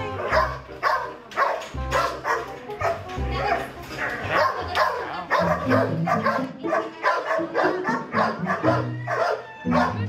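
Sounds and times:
puppy crying: 3.4s - 10.0s.

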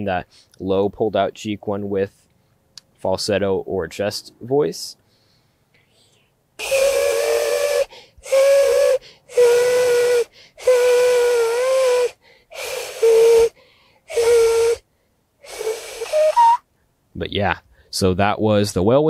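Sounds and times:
breathy whistle blows: 6.6s - 16.7s.

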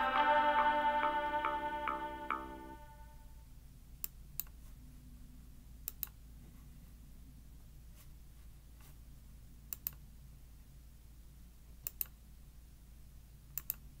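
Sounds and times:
low hum: 0.0s - 4.0s
faint sharp clicks: 5.8s - 6.2s, 9.7s - 10.0s, 11.8s - 12.2s, 13.5s - 13.8s.

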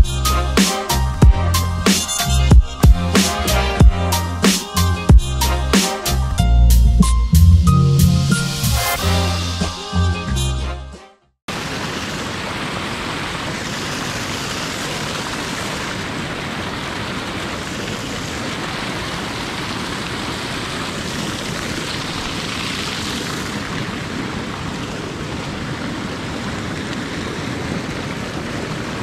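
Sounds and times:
turbulent river water rushing: 11.5s - 29.0s.

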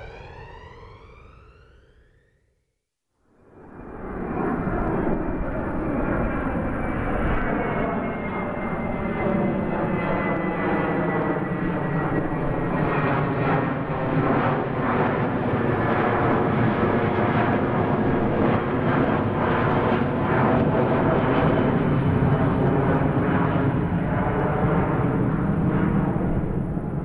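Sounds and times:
airplane engines droning: 0.0s - 2.4s, 3.3s - 27.0s.

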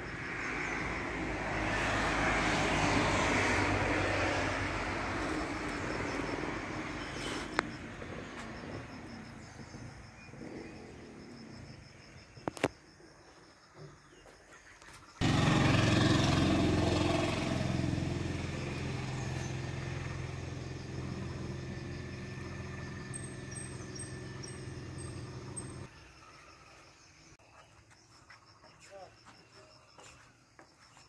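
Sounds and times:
motor engine running: 15.2s - 25.9s.

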